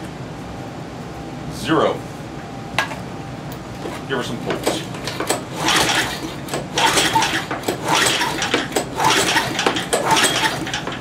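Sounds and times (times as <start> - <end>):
recoil starter rope whirring: 4.6 - 11.0.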